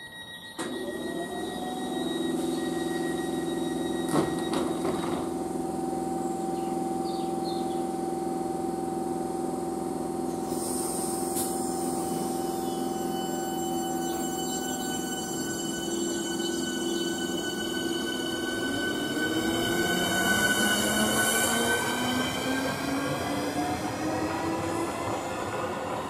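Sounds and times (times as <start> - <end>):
train electrical hum and whine: 0.0 - 26.0.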